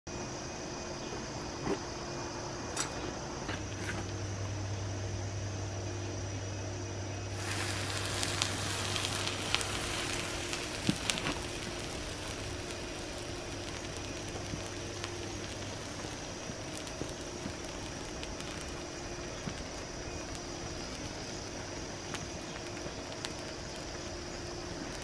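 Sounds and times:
low steady hum: 0.1s - 25.0s
hiss and sizzle: 3.6s - 25.0s
sharp cracks: 7.3s - 25.0s.

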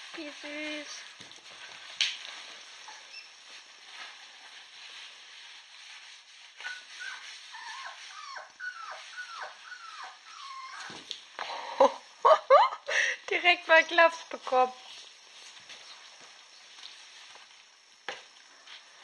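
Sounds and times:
dog whining: 6.6s - 11.1s.

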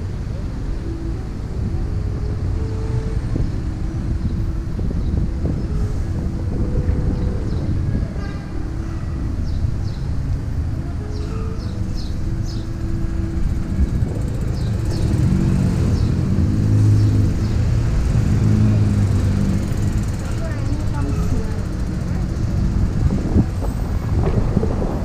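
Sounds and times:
vehicle engine hum: 0.0s - 25.0s
wind: 0.0s - 25.0s
wheel rumbling over paving stones: 10.9s - 25.0s.

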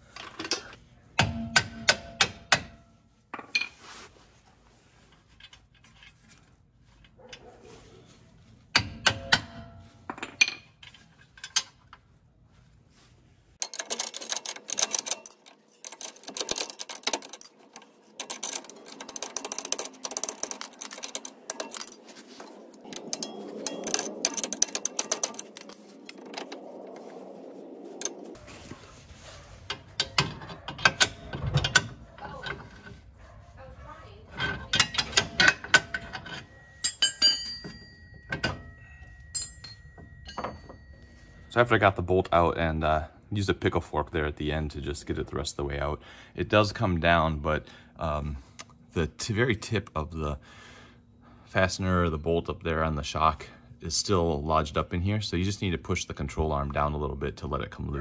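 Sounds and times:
hand tools clanking on steel: 0.0s - 3.9s, 8.7s - 12.0s, 13.6s - 26.6s, 29.2s - 33.3s, 33.9s - 41.6s.

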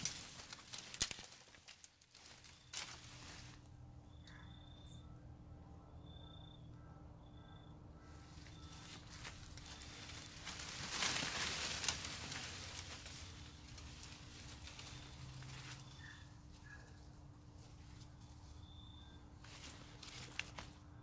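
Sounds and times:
twig snapping: 0.0s - 3.1s, 9.6s - 12.8s
leafy branches rustling: 0.0s - 4.0s, 8.0s - 21.0s.

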